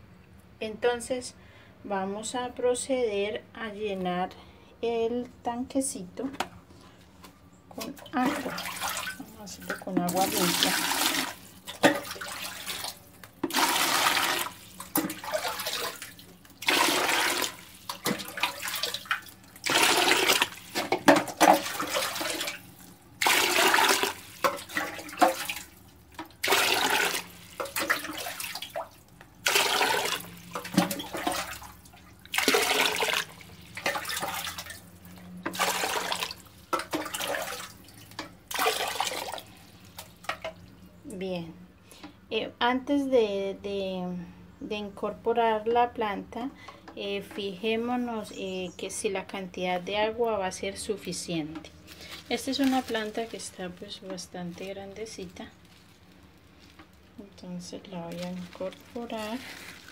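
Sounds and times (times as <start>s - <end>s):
water pouring into plastic bucket: 8.2s - 40.7s, 58.1s - 59.9s.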